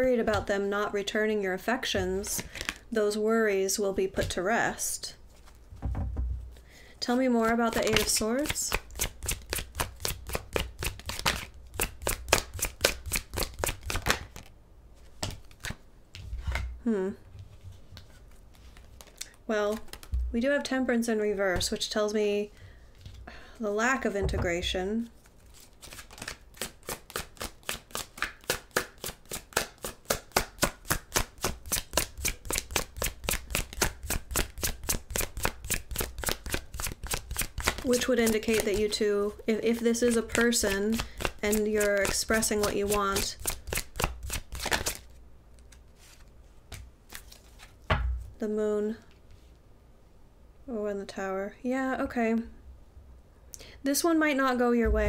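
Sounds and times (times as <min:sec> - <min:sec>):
cards being shuffled: 0:02.2 - 0:02.8, 0:07.4 - 0:16.6, 0:17.9 - 0:20.2, 0:25.0 - 0:47.9.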